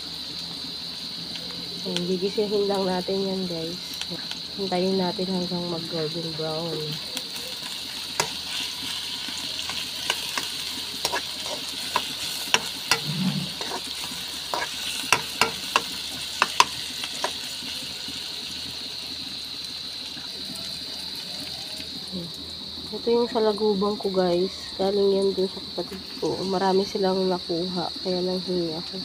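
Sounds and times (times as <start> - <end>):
onions sizzling in hot oil: 0.0 - 29.0
spatula scraping a pan: 8.1 - 17.5.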